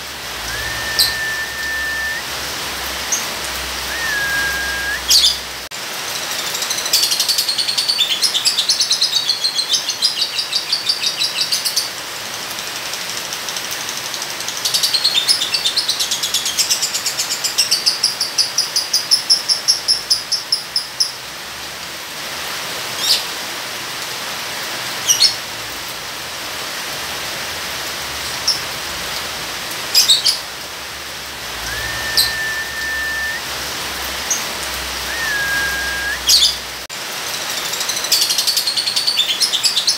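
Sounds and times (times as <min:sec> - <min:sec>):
rain hiss: 0:00.0 - 0:39.9
steady whistle-like tone: 0:00.4 - 0:02.3, 0:03.9 - 0:05.2, 0:31.6 - 0:33.5, 0:35.0 - 0:36.4.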